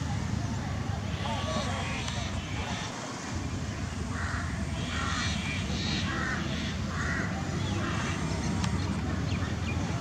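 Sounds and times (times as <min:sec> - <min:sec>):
crows cawing: 0:04.1 - 0:08.1.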